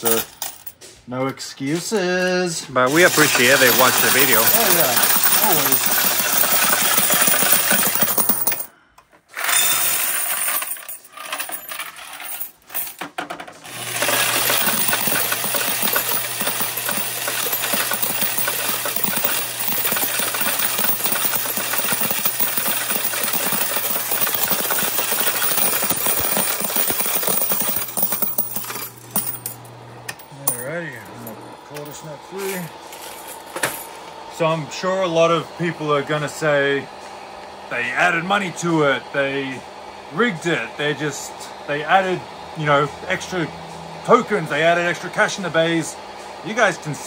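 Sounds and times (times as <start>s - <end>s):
coin counter motor humming: 0.0s - 0.7s, 2.9s - 8.7s, 9.4s - 13.0s, 13.6s - 35.2s
metal tokens clattering: 0.0s - 0.8s, 2.9s - 8.7s, 9.4s - 30.7s.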